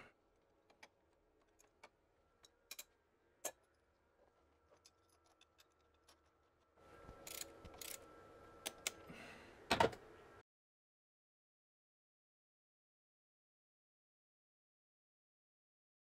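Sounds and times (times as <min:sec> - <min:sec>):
spanner clicking on metal parts: 0:00.7 - 0:03.6, 0:07.2 - 0:08.0.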